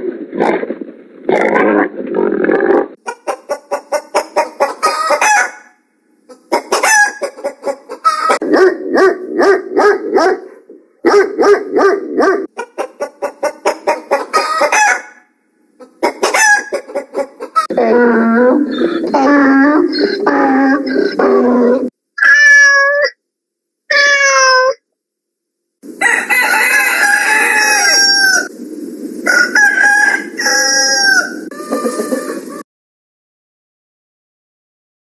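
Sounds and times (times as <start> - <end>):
chicken clucking and cackling: 3.0 - 8.7, 12.5 - 15.2, 15.8 - 17.7, 25.8 - 28.5, 29.2 - 32.6
donkey braying: 17.6 - 23.1.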